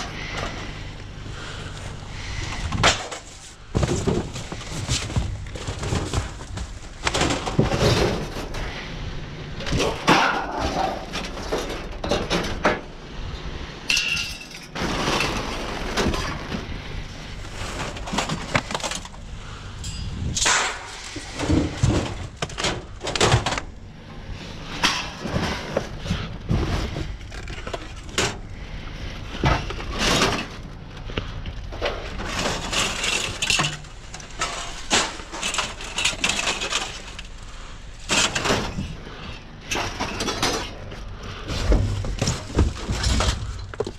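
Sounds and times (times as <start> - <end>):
cardboard crinkling and scraping: 1.4 - 8.8, 14.8 - 19.6, 24.3 - 39.2, 39.8 - 43.9
sheet metal clanking in a dumpster: 9.6 - 12.9.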